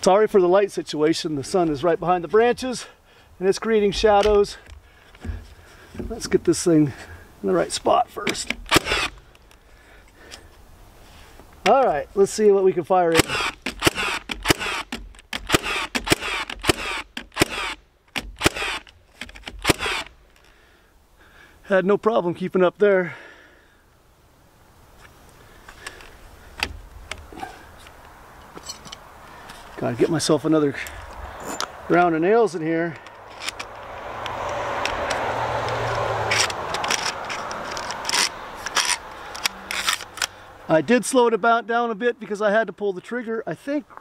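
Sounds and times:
nail gun firing into wood: 0:08.4 - 0:09.2, 0:13.2 - 0:20.1
nailer motor whir: 0:08.5 - 0:09.2, 0:13.2 - 0:20.2
nail strip metallic scrape: 0:36.3 - 0:40.3.

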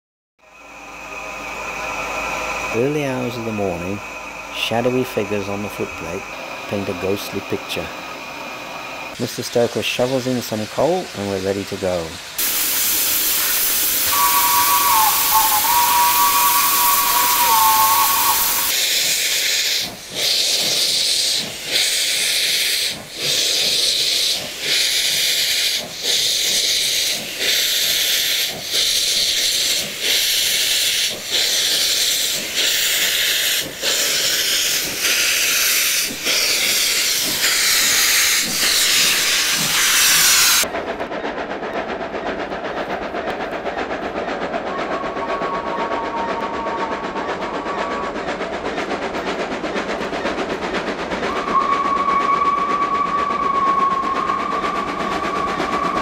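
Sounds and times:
hissing locomotive exhaust beats: 0:00.4 - 0:56.0
train running on rails: 0:00.4 - 0:56.0
loud hissing steam: 0:00.5 - 0:56.0
steam locomotive whistle: 0:12.4 - 0:18.8, 0:44.8 - 0:48.2, 0:51.2 - 0:56.0.

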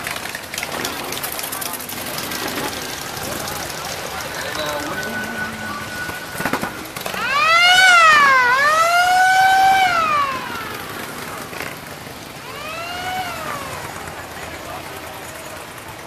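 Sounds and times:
siren wailing: 0:02.8 - 0:14.9.

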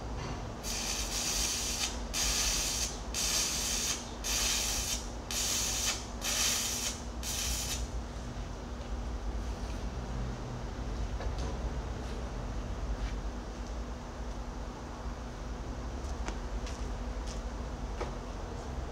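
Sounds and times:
arc welding crackling sizzle: 0:00.6 - 0:07.9.

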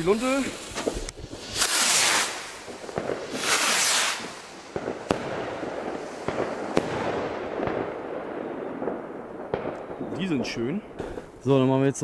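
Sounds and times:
small firework cracks: 0:00.0 - 0:11.4
firework bangs: 0:00.0 - 0:11.5
rockets hissing: 0:00.0 - 0:11.6.

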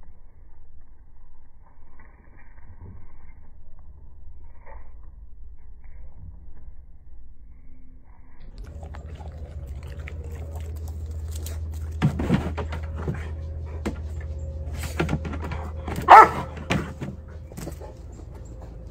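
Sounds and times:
paws thumping on dog bed: 0:11.9 - 0:18.8
dog barking: 0:15.9 - 0:17.0.

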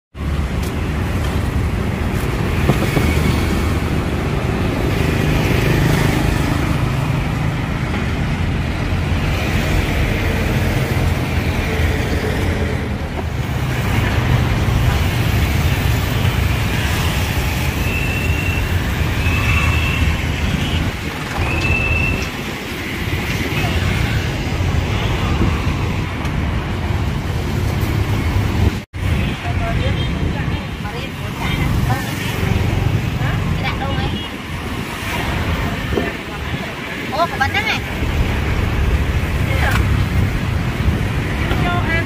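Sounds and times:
traffic engines rumbling past: 0:00.2 - 0:42.0.

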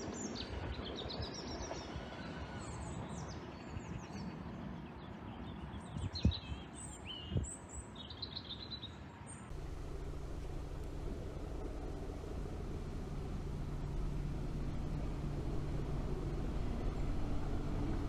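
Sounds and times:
outdoor background noise: 0:00.0 - 0:18.0
small birds chirping: 0:05.4 - 0:18.0.

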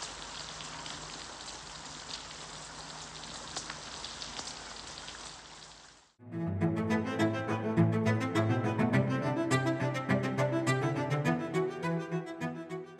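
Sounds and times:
raindrops ticking: 0:00.0 - 0:06.1
heavy rain pouring: 0:00.0 - 0:06.2
music with sustained low notes: 0:06.2 - 0:12.9.

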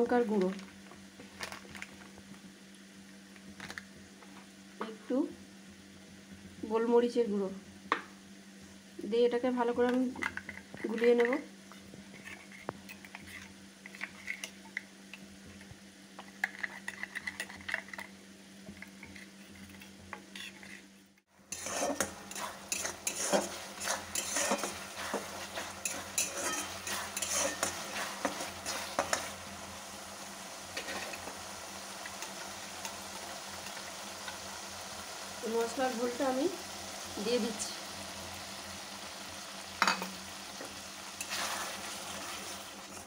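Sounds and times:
spatula scraping and stirring: 0:10.3 - 0:14.8, 0:16.2 - 0:18.1, 0:18.7 - 0:29.8, 0:30.7 - 0:34.5, 0:40.6 - 0:43.0
paste sizzling in hot oil: 0:21.4 - 0:43.0
spoon stirring in a steel bowl: 0:21.5 - 0:29.4.

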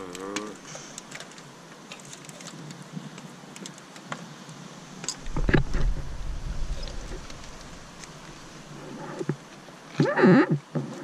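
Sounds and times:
low rumble: 0:05.2 - 0:08.7.

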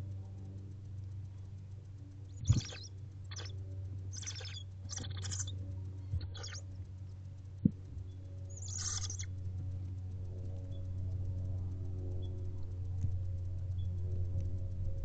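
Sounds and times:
steady low hum: 0:00.0 - 0:15.0
owlets hissing calls: 0:02.4 - 0:03.5, 0:04.1 - 0:05.5, 0:06.2 - 0:06.6, 0:08.5 - 0:09.3.

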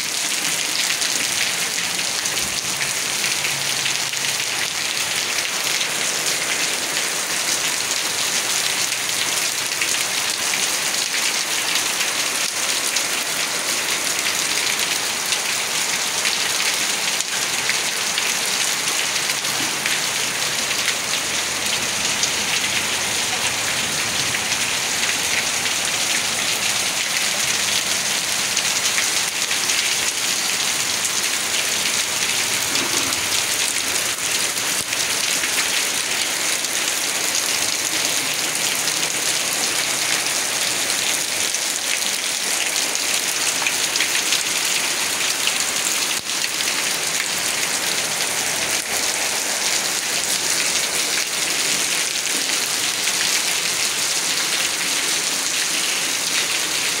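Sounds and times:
rain falling on brick paving: 0:00.0 - 0:57.0.

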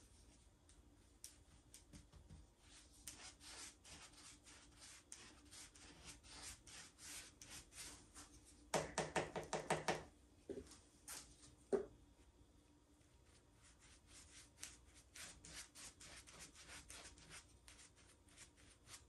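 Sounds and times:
brush swishing on tabletop: 0:01.3 - 0:08.6.

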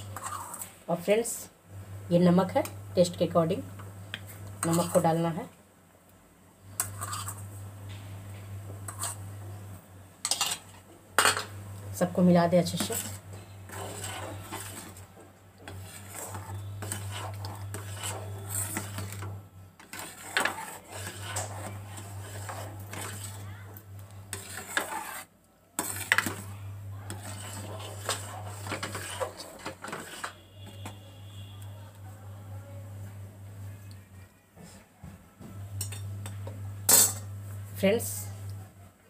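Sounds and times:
metal ladle scraping a pan: 0:00.0 - 0:00.7, 0:04.6 - 0:05.1, 0:06.8 - 0:07.4, 0:08.9 - 0:09.2, 0:10.2 - 0:11.5, 0:12.7 - 0:23.4, 0:24.3 - 0:26.5, 0:27.1 - 0:31.6.

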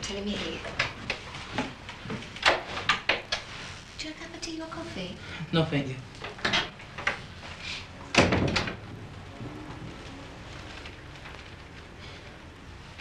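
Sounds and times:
steady hiss: 0:00.0 - 0:13.0
short knocks and clatters: 0:06.2 - 0:07.3.

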